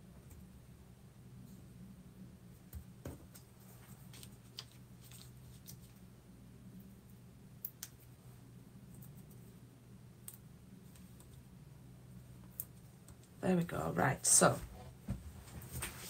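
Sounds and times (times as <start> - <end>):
steady low hum: 0.0 - 16.0
paper rustling: 3.6 - 6.0.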